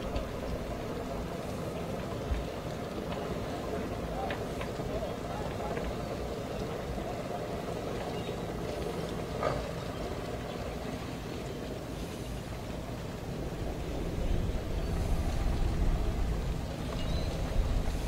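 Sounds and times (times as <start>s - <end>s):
distant boat engine idling: 0.0s - 18.0s.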